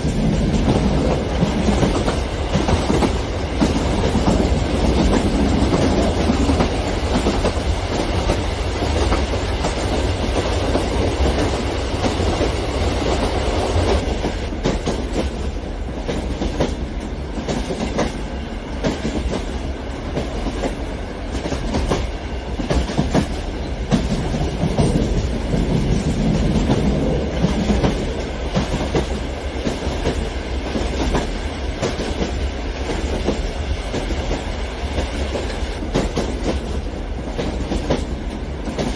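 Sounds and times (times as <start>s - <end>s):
clickety-clack of rails: 0.0s - 38.9s.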